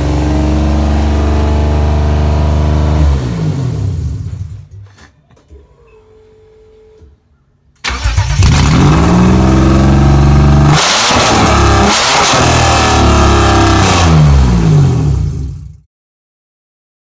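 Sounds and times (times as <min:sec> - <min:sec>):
car engine revving: 0:00.0 - 0:04.2, 0:07.9 - 0:15.7.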